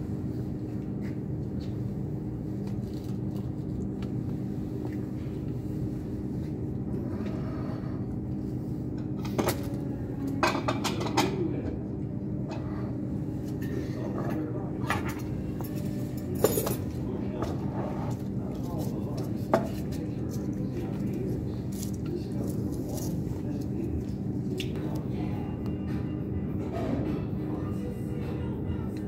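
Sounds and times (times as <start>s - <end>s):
low mechanical hum: 0.0s - 29.0s
objects clinking and rattling: 15.0s - 17.0s.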